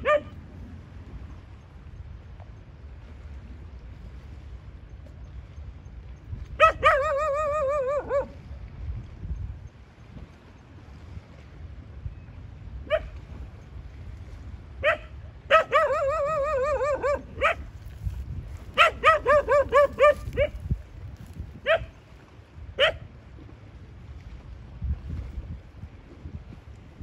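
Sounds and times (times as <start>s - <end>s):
dog barking: 0.0s - 0.4s, 6.6s - 8.3s, 14.8s - 17.7s, 18.8s - 20.6s, 21.6s - 22.0s, 22.8s - 23.0s.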